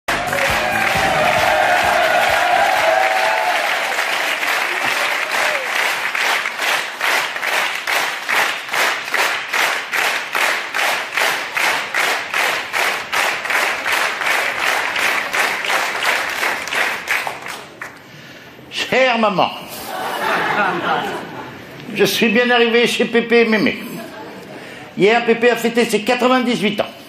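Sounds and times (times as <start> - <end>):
audience applauding: 0.1 - 18.0
rhythmic clapping in unison: 0.1 - 18.0.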